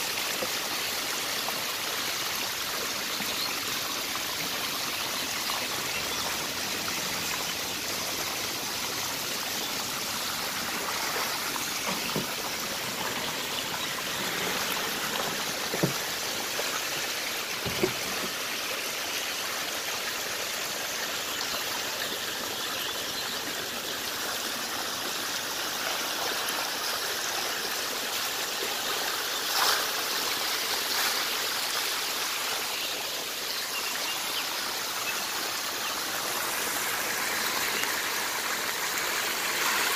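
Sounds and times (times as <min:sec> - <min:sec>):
fish splashing in shallow water: 0:05.7 - 0:18.5.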